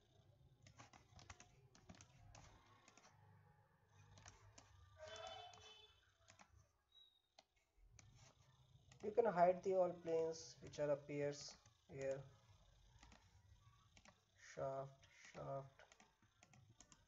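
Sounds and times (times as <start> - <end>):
mouse and keyboard clicks: 0.6 - 3.2, 3.9 - 6.6, 7.4 - 9.2, 12.9 - 14.3, 15.2 - 17.0.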